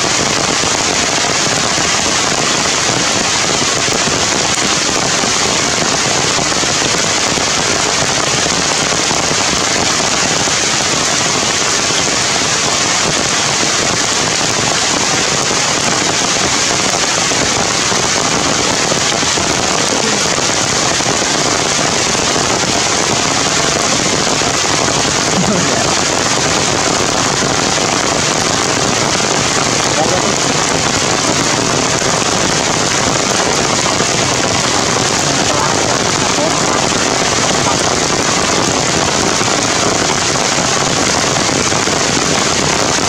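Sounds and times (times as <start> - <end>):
heavy rain: 0.0 - 43.0.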